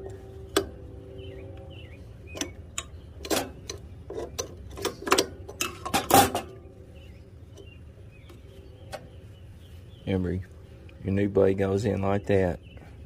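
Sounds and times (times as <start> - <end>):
metal clicks and clinks: 2.4 - 6.6.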